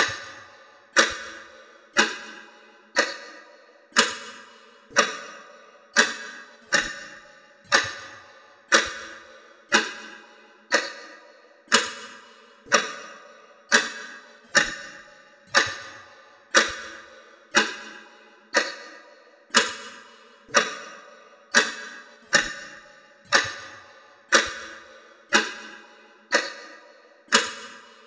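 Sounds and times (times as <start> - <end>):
alarm clock ticking: 0.0 - 2.2, 3.9 - 5.4, 6.0 - 10.0, 11.7 - 13.1, 13.7 - 17.9, 19.5 - 25.6, 27.3 - 27.9.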